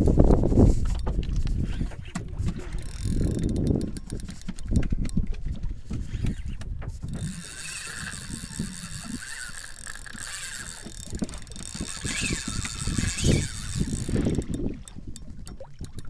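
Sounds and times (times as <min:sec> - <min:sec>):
fishing reel drag buzzing: 0:00.4 - 0:16.0.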